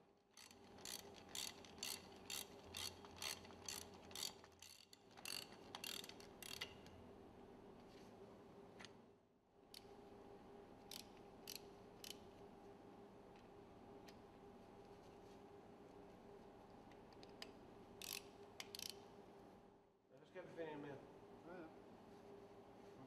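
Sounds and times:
ratcheting spanner clicking: 0:00.4 - 0:06.9, 0:10.9 - 0:12.2, 0:17.1 - 0:19.0.

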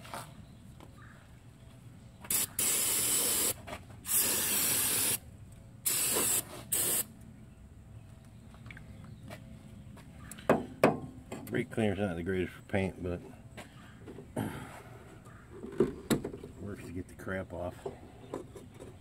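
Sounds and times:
aerosol can spraying: 0:02.3 - 0:05.2, 0:05.9 - 0:07.1.

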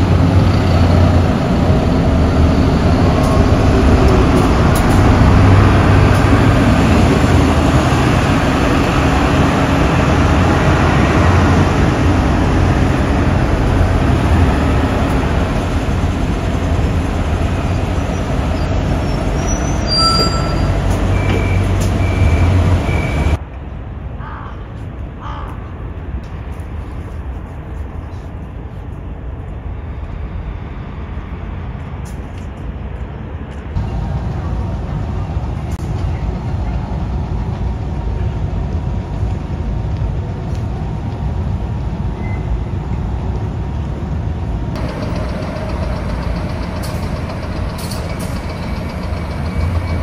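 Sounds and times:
bus engines rumbling: 0:00.0 - 0:50.0
road traffic: 0:00.0 - 0:50.0
short beeps: 0:19.8 - 0:23.4.

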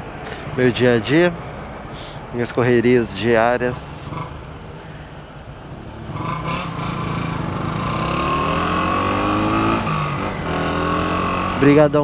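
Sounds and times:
motorcycle engine pulling away: 0:05.9 - 0:11.7.

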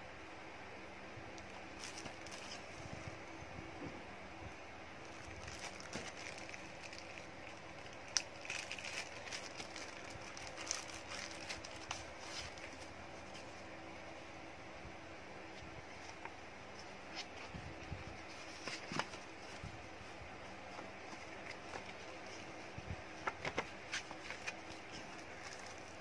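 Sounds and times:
faint steady hum: 0:00.0 - 0:26.0
plastic wrapping crinkling: 0:01.8 - 0:02.6, 0:05.0 - 0:13.6, 0:20.7 - 0:26.0
paper rustling: 0:08.2 - 0:13.6, 0:18.2 - 0:26.0.

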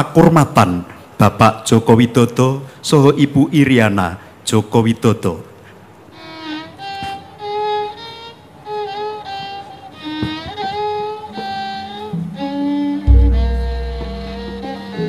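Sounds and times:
violin playing slow melody: 0:06.1 - 0:15.0
low held accompanying note: 0:13.0 - 0:15.0.

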